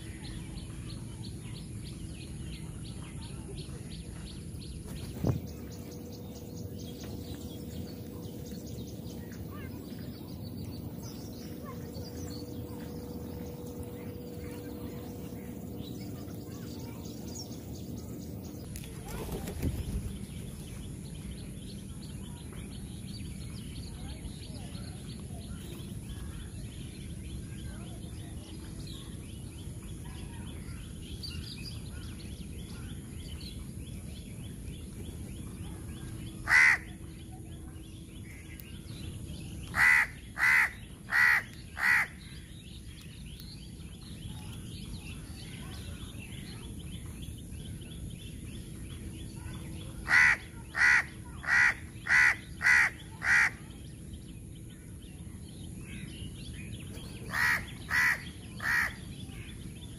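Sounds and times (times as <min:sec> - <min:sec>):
crow cawing: 0:36.4 - 0:36.9, 0:39.8 - 0:42.2, 0:50.1 - 0:53.6, 0:57.3 - 0:59.0.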